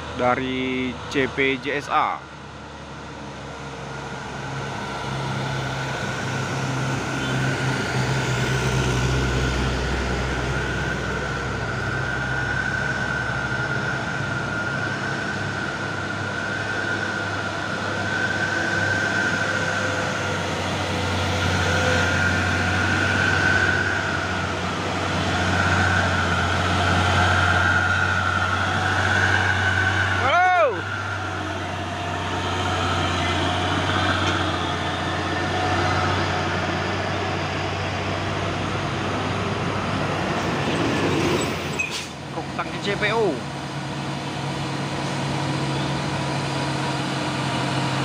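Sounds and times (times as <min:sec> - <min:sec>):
truck engines labouring: 0:00.0 - 0:48.0
high whine: 0:03.8 - 0:40.6.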